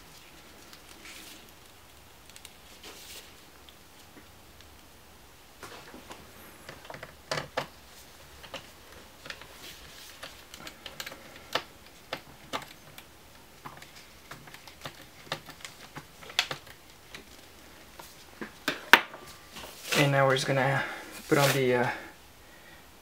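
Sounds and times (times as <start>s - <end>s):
small clicks and taps on plastic: 10.2s - 17.4s.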